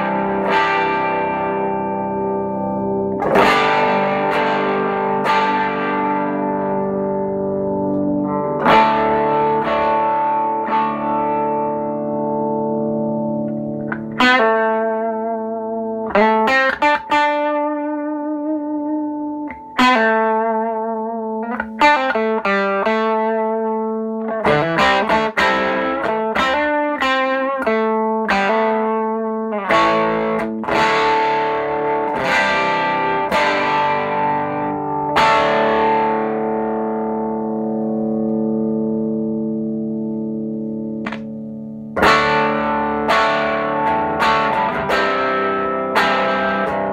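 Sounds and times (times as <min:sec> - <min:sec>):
electric guitar through tube amplifier: 0:00.0 - 0:46.9.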